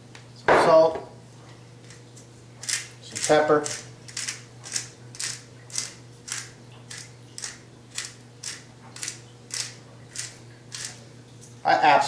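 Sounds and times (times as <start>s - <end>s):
pepper mill grinding: 2.6s - 11.0s.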